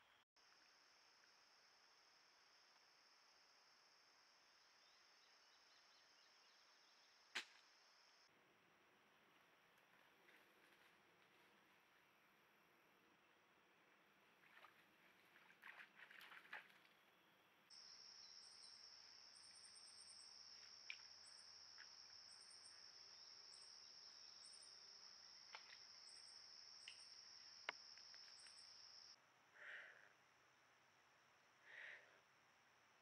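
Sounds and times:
insect chirping bursts: 17.7s - 29.2s
faint sharp clicks: 26.8s - 28.6s.

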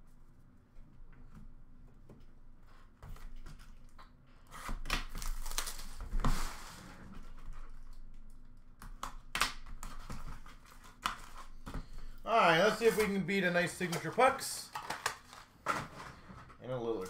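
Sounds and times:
plastic wrapping crinkling: 5.0s - 6.6s, 12.5s - 16.1s.

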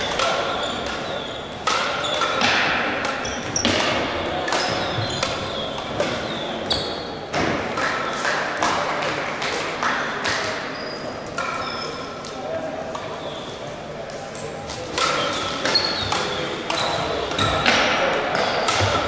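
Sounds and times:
sneakers squeaking on floor: 0.0s - 2.4s, 3.2s - 7.2s, 10.7s - 12.2s, 13.2s - 13.7s, 15.1s - 17.7s, 18.3s - 19.0s.

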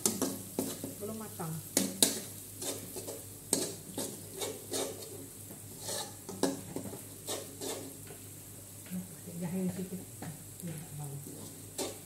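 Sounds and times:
metal spatula scraping a wok: 0.0s - 1.0s, 1.6s - 8.2s, 11.2s - 12.0s
faint sizzle: 0.0s - 12.0s.

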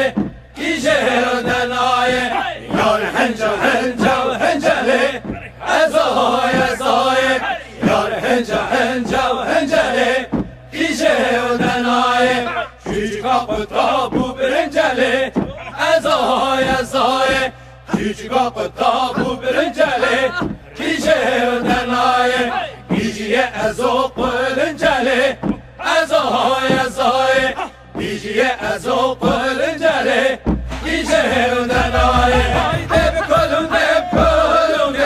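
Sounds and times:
person singing chant-like phrases: 0.0s - 35.0s
steady low accompaniment: 30.4s - 35.0s.

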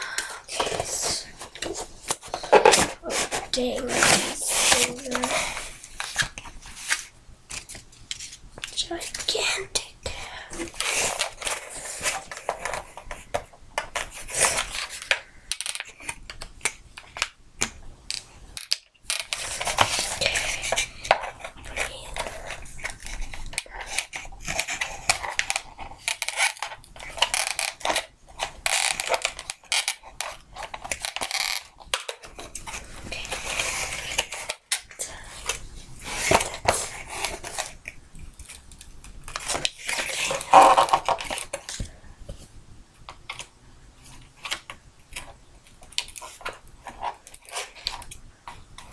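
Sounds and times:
packaging rustling and clattering: 0.0s - 9.3s, 18.1s - 42.0s.

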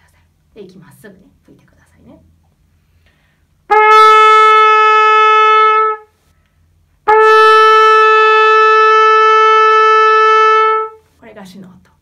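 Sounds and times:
trumpet held notes: 3.7s - 6.2s, 7.0s - 11.1s.

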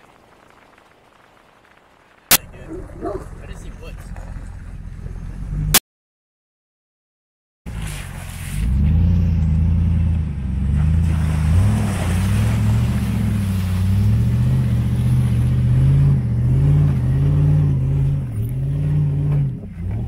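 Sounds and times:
pickup truck engine revving: 7.7s - 20.0s.

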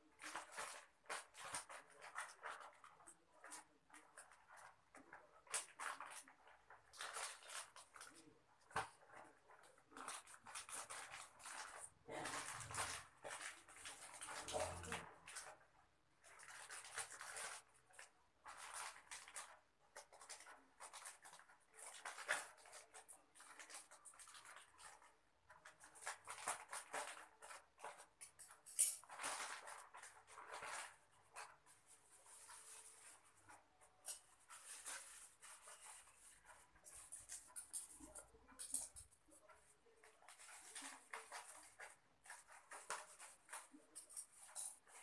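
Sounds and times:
plastic bag crinkling: 0.1s - 15.6s, 16.2s - 45.0s
scissors cutting plastic: 0.2s - 15.6s, 25.7s - 31.6s, 34.0s - 45.0s.

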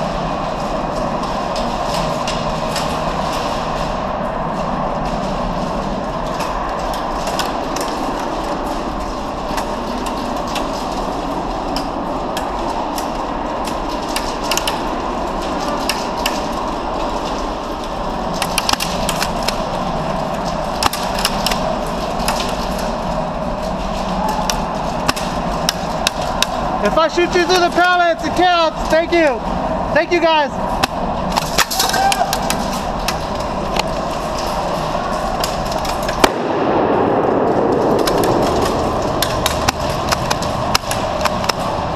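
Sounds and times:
pellets striking wooden pallets: 13.6s - 41.9s
airsoft gunfire cracks: 36.2s - 39.8s.

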